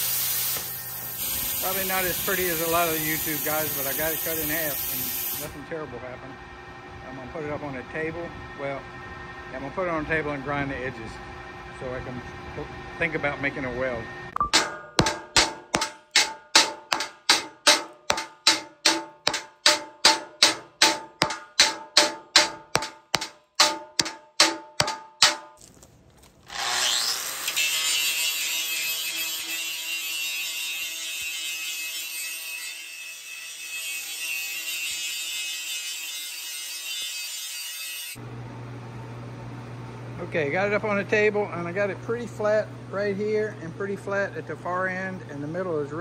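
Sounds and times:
hammer on steel plate: 0:14.4 - 0:25.6
angle grinder grinding steel: 0:26.5 - 0:38.2.

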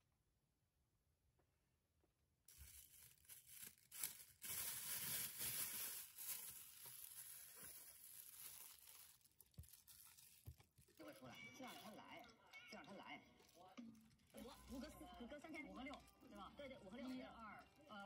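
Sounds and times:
plastic glove crinkling: 0:02.5 - 0:11.9.

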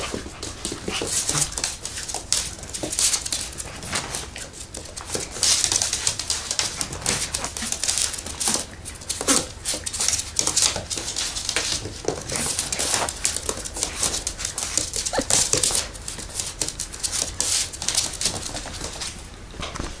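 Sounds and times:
puppy claws clicking on wood floor: 0:00.0 - 0:19.8.

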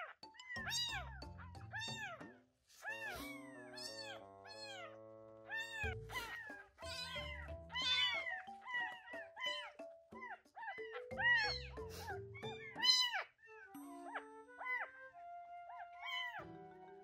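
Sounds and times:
background music: 0:00.0 - 0:17.0
kitten mewing: 0:02.8 - 0:04.9, 0:05.5 - 0:09.7.

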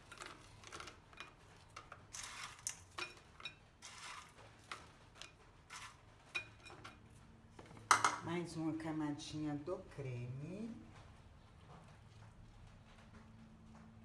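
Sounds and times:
biscuit crunching and crackling: 0:00.0 - 0:06.0.

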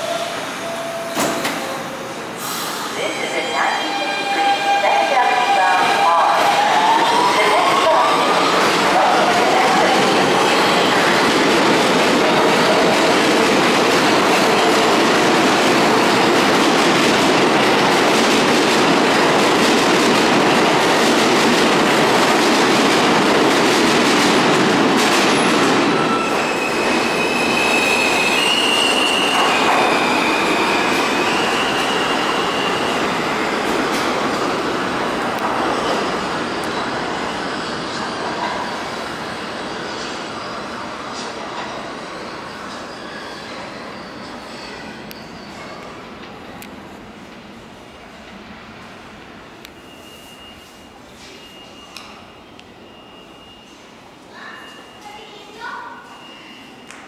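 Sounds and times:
subway train wheels on rails: 0:00.0 - 0:57.0
high wheel squeals: 0:25.9 - 0:33.2, 0:42.2 - 0:45.9.

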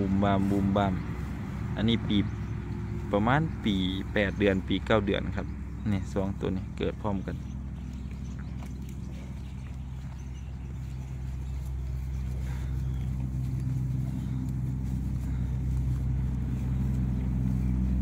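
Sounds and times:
vehicle engine running low: 0:00.0 - 0:18.0.

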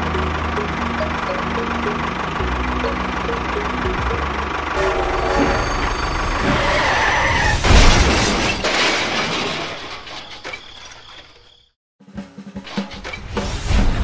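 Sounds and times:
engine running: 0:00.0 - 0:07.5
crash smash: 0:04.9 - 0:10.5
shattering and breaking: 0:07.5 - 0:11.2.

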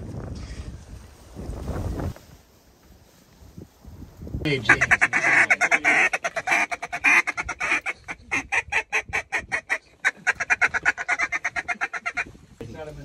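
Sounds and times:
goose call clucking notes: 0:04.5 - 0:12.4.

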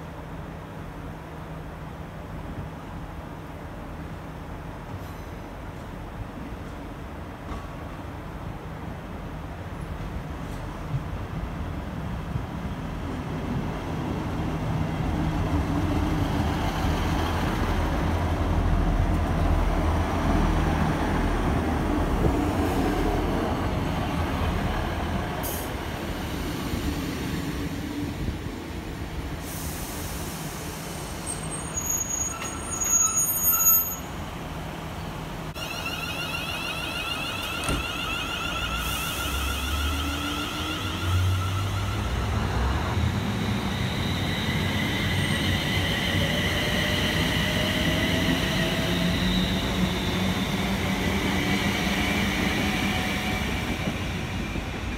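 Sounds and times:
diesel train engines rumbling: 0:00.0 - 0:54.9
train wheel and brake noise: 0:29.2 - 0:34.2, 0:37.2 - 0:54.9
high-pitched brake squeals: 0:31.0 - 0:34.2, 0:35.6 - 0:50.5
steady high tone: 0:35.5 - 0:50.2.

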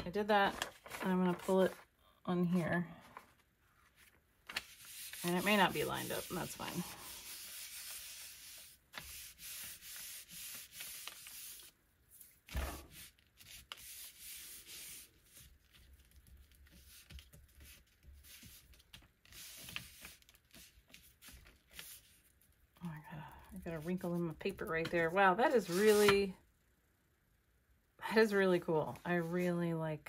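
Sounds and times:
palms rubbing paper: 0:03.9 - 0:22.4, 0:25.5 - 0:26.2
thump: 0:12.5 - 0:12.9.

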